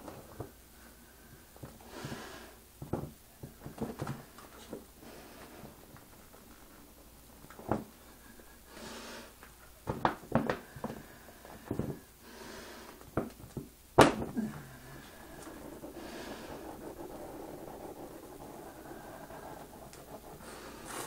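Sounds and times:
soft hisses: 14.3s - 21.0s.

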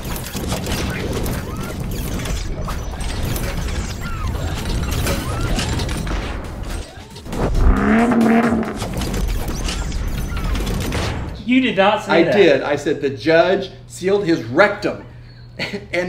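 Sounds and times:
mechanical clattering and ratcheting: 0.0s - 11.4s
low rumble: 7.3s - 9.2s.

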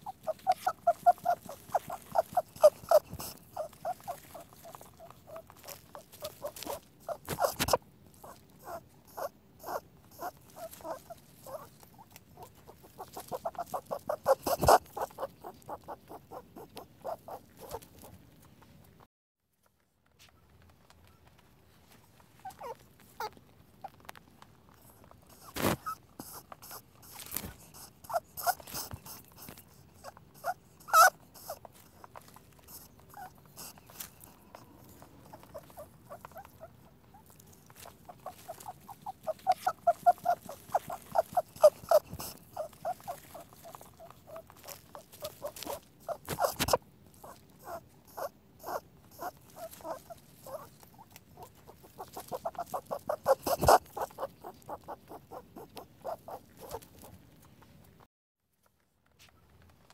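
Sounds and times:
rabbit clicking squeaks: 0.0s - 19.0s, 22.4s - 24.0s, 24.8s - 58.0s.

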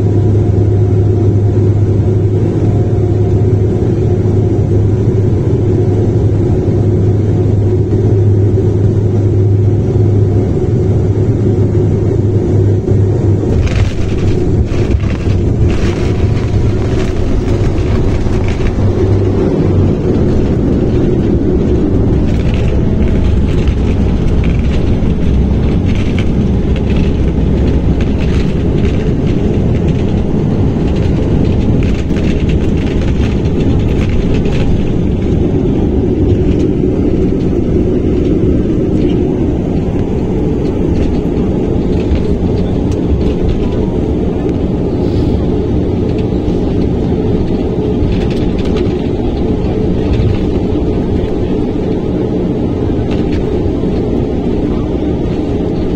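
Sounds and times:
turboprop engines running: 0.0s - 55.9s
landing gear wheels rumbling: 13.3s - 52.2s.

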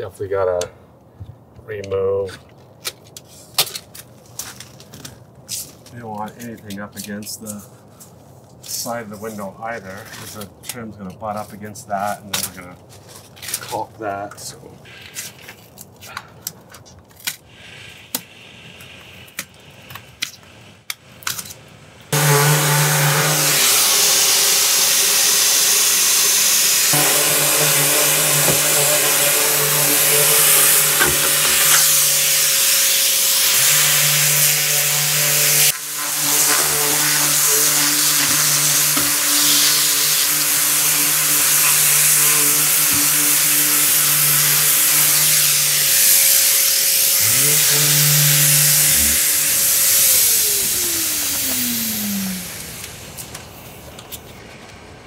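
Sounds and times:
hand scraper scraping foam: 22.1s - 51.8s
electric sander grinding: 22.1s - 53.0s
dust extraction vacuum hiss: 22.1s - 53.9s.

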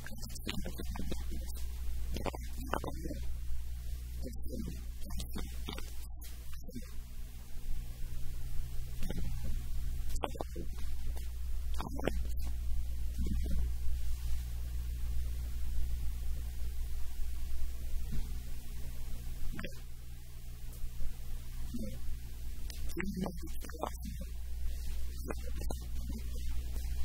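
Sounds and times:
soft sounds from man: 0.0s - 3.3s, 4.2s - 7.0s, 10.1s - 11.0s, 11.8s - 13.7s, 21.7s - 22.1s, 22.7s - 27.0s
low electrical hum: 0.0s - 27.0s.

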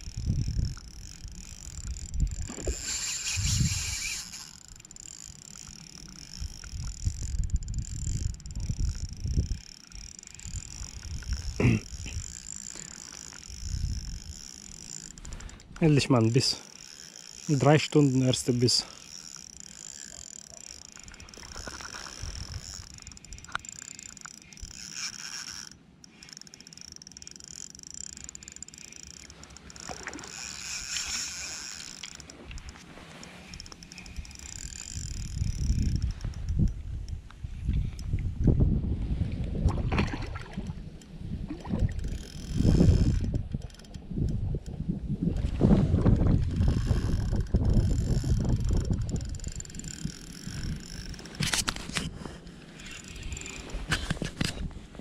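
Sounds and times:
wind rumbling on microphone: 0.0s - 16.2s, 21.0s - 23.7s, 32.4s - 55.0s
fishing reel clicking and whirring: 0.0s - 38.6s, 40.4s - 55.0s.

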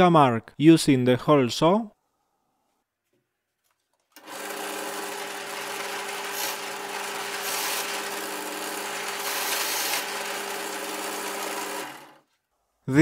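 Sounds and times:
hole saw cutting wood: 4.2s - 12.2s
drill press motor humming: 4.2s - 12.3s.

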